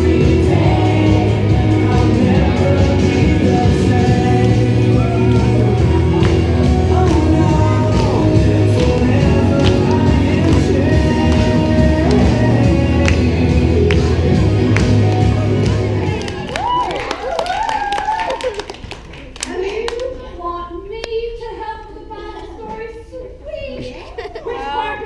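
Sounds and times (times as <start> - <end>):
woman singing lead: 0.0 - 14.4
group of voices singing: 0.0 - 16.4
heavy bass and beat: 0.0 - 16.4.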